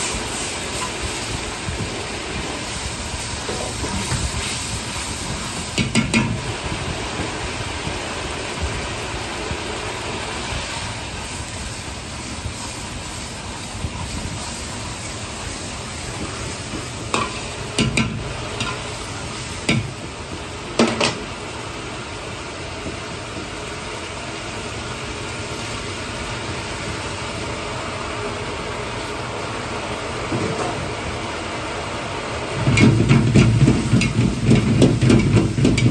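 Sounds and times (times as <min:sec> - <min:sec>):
sauce boiling and sizzling: 0:00.0 - 0:35.9
ladle clacking on wok: 0:16.7 - 0:19.0, 0:32.7 - 0:35.9.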